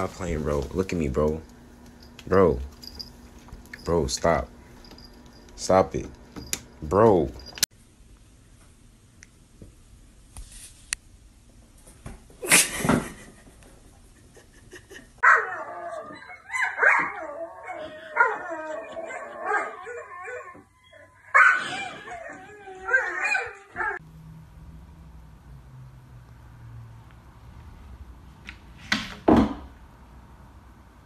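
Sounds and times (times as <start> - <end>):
puppy yipping and whining: 15.2 - 24.0.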